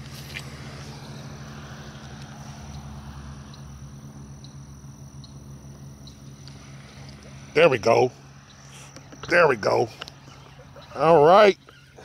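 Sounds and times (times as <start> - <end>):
thin insect drone: 0.0 - 12.0
faint ticks: 6.0 - 7.3
frog chorus: 7.9 - 12.0.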